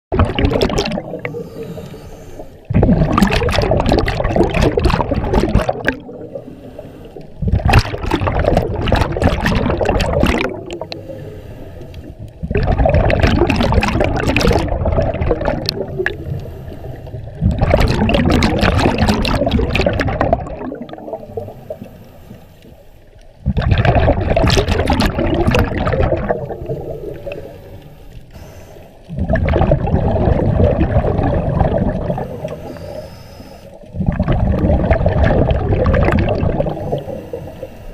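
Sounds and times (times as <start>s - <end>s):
exhaled bubbles gurgling underwater: 0.1s - 37.9s
diver breathing: 1.2s - 2.7s, 6.2s - 7.4s, 10.8s - 12.2s, 16.1s - 17.4s, 26.7s - 29.1s, 32.1s - 33.7s.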